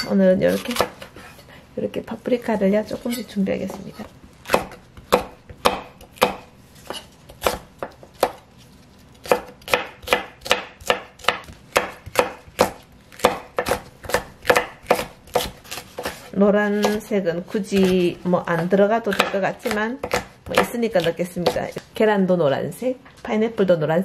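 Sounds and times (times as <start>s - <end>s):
knife chopping on wooden board: 3.7s - 8.4s, 9.2s - 17.1s, 17.7s - 21.8s.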